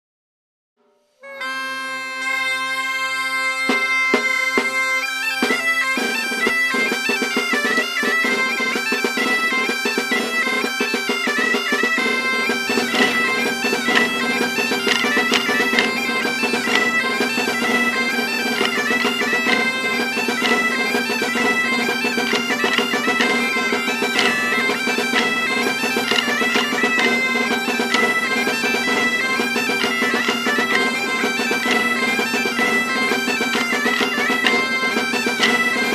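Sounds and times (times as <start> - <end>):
folk tune on reed wind instrument: 1.2 - 35.9
wooden sticks clacking: 10.9 - 35.9.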